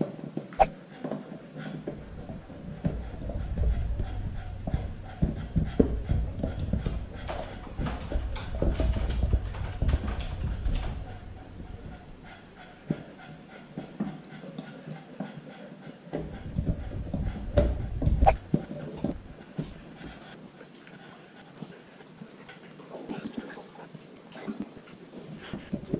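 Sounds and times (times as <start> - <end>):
puppy chewing on foam: 0.6 - 13.2.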